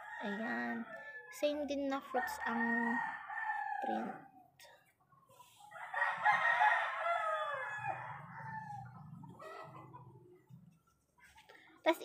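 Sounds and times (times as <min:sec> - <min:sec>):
rooster crowing: 0:02.2 - 0:04.2, 0:05.7 - 0:09.8.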